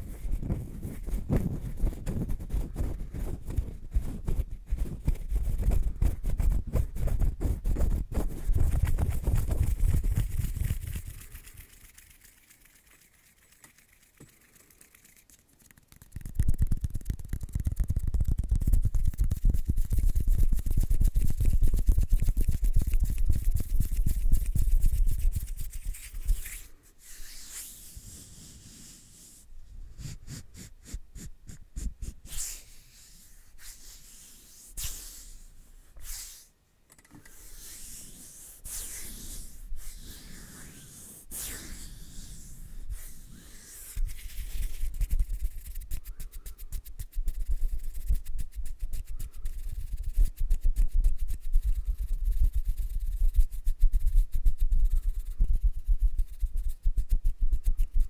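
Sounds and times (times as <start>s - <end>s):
light taps and rubs: 0.0s - 27.8s, 42.4s - 58.0s
brushing against microphone: 0.0s - 36.6s, 37.2s - 58.0s.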